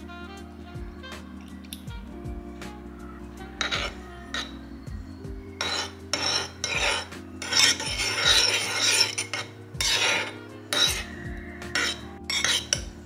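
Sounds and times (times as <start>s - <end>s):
metal spoon scraping a bowl: 3.5s - 4.6s, 5.6s - 13.0s.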